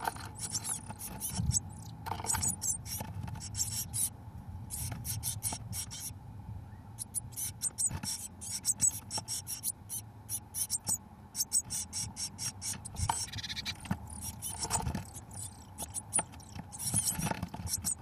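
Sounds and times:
birds scratching in nest box: 0.0 - 4.1, 4.7 - 6.1, 7.0 - 18.0
nestlings begging calls: 0.0 - 4.1, 4.7 - 6.1, 7.0 - 18.0.

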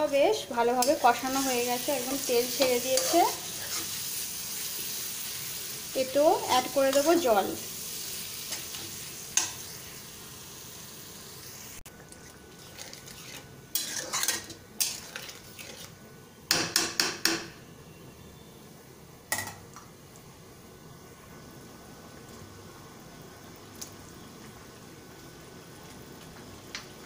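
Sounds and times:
faint frying hiss: 0.0 - 27.0
metal spatula scraping metal pan: 2.2 - 4.0, 12.6 - 16.0.

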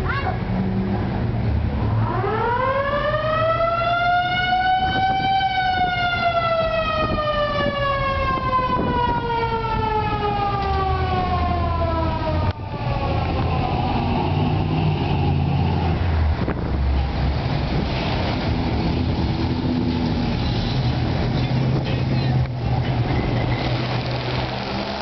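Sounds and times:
low engine and traffic rumble: 0.0 - 25.0
siren wailing: 1.8 - 16.0.

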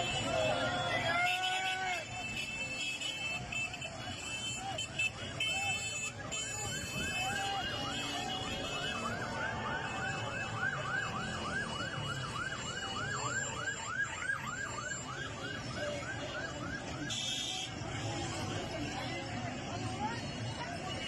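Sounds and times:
marching street crowd: 0.0 - 21.0
siren yelping: 6.6 - 17.2.

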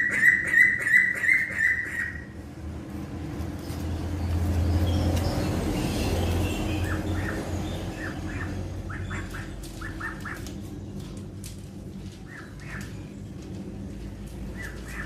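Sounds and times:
duckling peeping: 0.0 - 2.3, 6.8 - 10.6.

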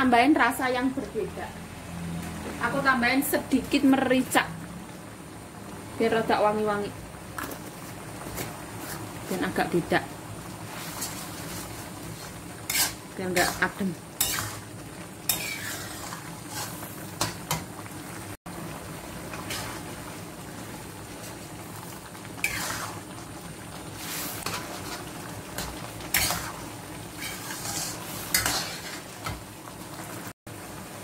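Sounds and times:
sauce sizzling: 0.0 - 31.0
metal spatula scraping wok: 10.6 - 17.6, 19.4 - 19.8, 22.4 - 23.1, 24.0 - 29.4.

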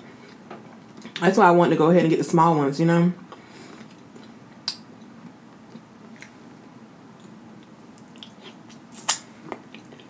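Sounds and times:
wet mouth clicks: 8.0 - 9.9
mouth smack biting food: 8.1 - 9.9.

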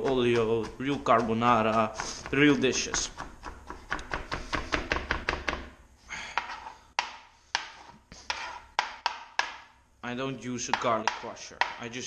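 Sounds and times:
knife mincing on cutting board: 0.0 - 4.9, 6.4 - 9.0.

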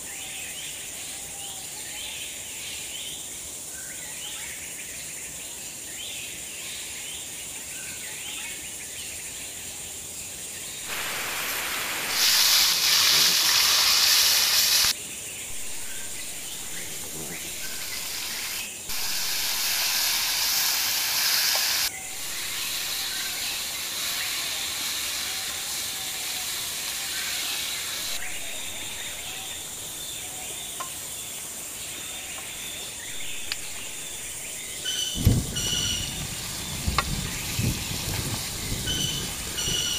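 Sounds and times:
birds chirping faintly: 10.6 - 39.9
chicken sizzling in a pan: 10.8 - 15.0, 15.6 - 30.2, 33.2 - 39.9.

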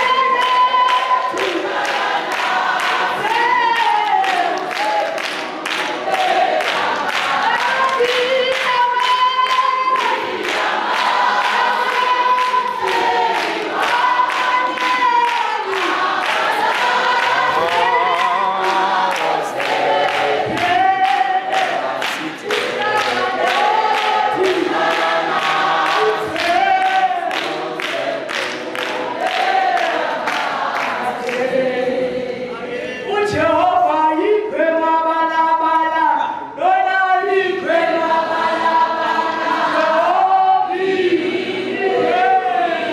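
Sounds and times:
woman singing gospel into microphone: 0.0 - 5.2, 7.2 - 10.6, 11.4 - 28.0, 33.1 - 38.9
rhythmic hand-clapping: 0.0 - 32.3, 37.5 - 40.2
congregation singing: 0.0 - 42.9.

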